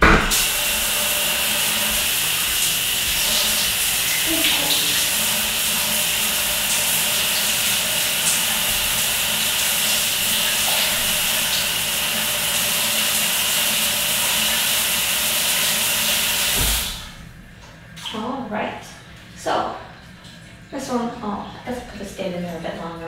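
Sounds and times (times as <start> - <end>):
shower water spraying: 0.0 - 17.2.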